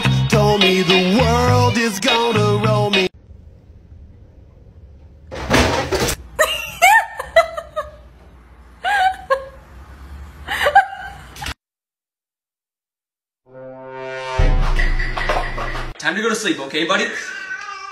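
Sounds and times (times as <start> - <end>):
person laughing: 6.4 - 8.1, 8.8 - 9.6, 10.5 - 11.5, 14.8 - 15.9.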